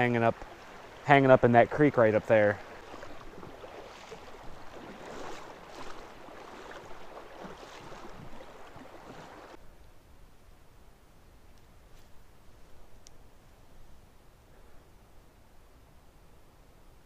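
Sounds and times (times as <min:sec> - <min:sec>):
water splashing around waders: 0:00.0 - 0:09.6.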